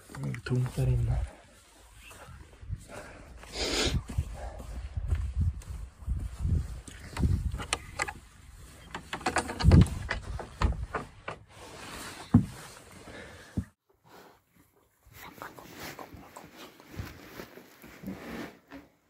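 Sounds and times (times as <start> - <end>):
footsteps on wooden floor: 12.2 - 12.7
clothing rustling: 15.1 - 19.0.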